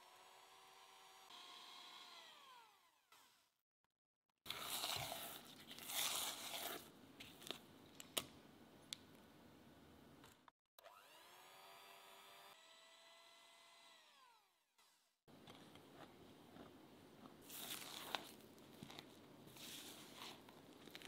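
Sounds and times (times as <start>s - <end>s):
electric hand mixer whining: 0.0s - 3.1s, 10.8s - 14.5s.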